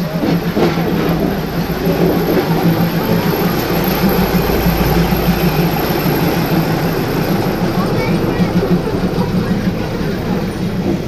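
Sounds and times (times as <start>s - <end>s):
diesel railcar passing: 0.0s - 11.0s.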